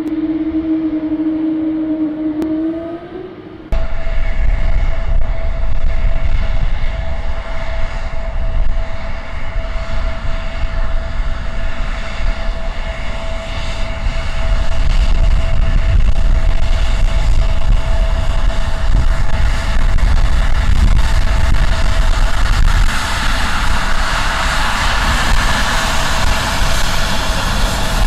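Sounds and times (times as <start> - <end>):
jet engines whining: 0.0 - 28.0.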